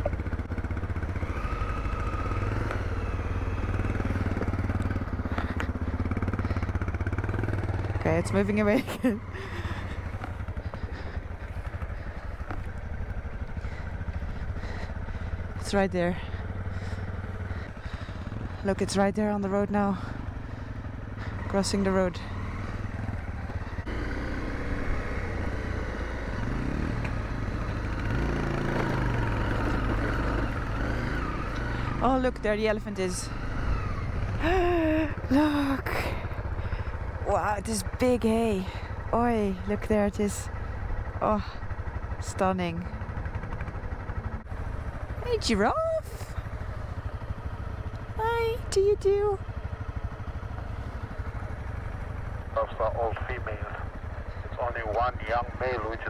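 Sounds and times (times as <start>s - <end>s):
motorcycle engine idling: 0.0s - 56.0s.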